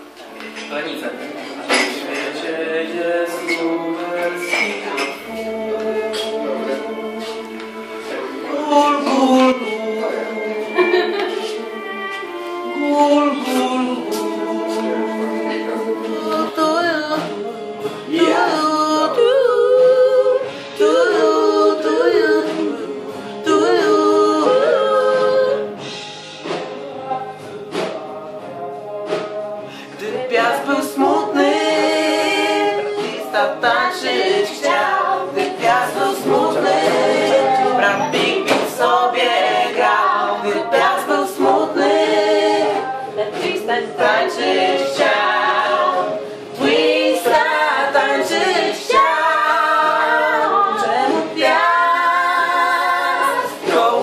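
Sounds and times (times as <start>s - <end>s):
group singing a cappella: 1.3s - 54.0s.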